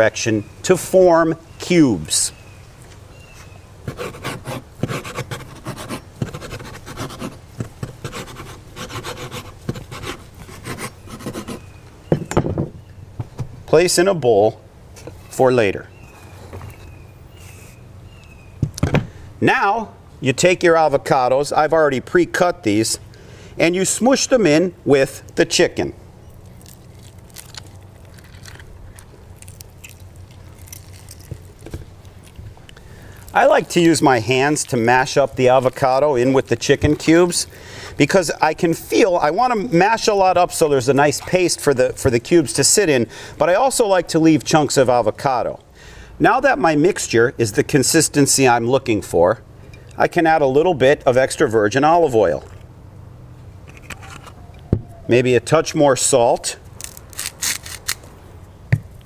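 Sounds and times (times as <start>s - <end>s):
low steady hum: 0.0s - 59.0s
wet squishes of mashing by hand: 26.4s - 34.8s.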